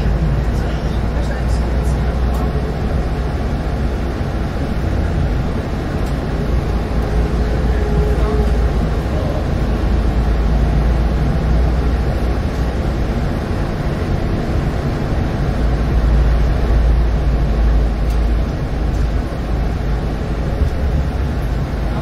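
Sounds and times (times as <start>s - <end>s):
bus diesel engine running: 0.0s - 22.0s
road and tyre rumble: 0.0s - 22.0s.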